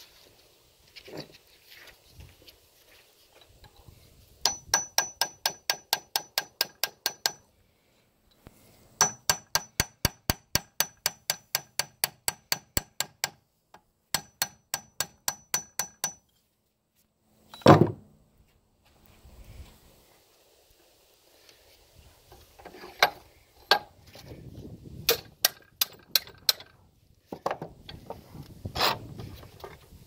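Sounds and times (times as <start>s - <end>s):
hammer striking metal: 4.4s - 7.4s, 9.0s - 13.4s, 14.1s - 16.2s.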